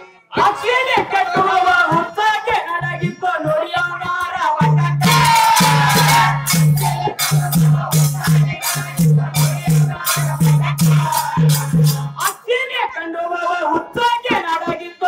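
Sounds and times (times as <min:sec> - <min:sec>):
man singing: 0:00.0 - 0:15.0
double-headed drum beat: 0:04.6 - 0:12.4
hand cymbals clashing: 0:05.0 - 0:12.3.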